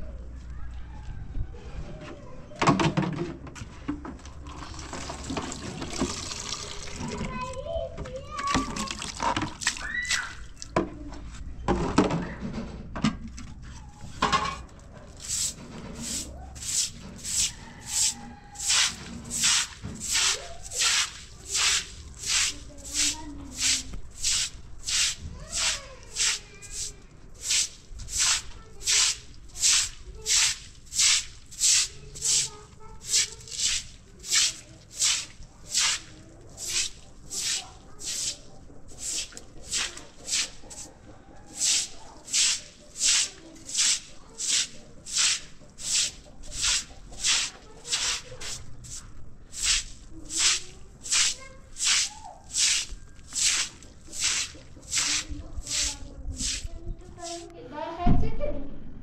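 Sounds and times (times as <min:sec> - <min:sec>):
water splashing onto concrete: 0:04.5 - 0:07.3, 0:08.5 - 0:10.7, 0:15.2 - 0:40.6, 0:41.6 - 0:57.4
broom sweeping wet concrete: 0:15.0 - 0:57.5.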